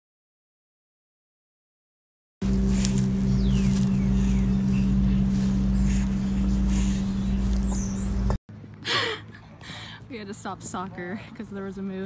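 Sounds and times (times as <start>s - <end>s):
machine humming: 2.4s - 8.4s.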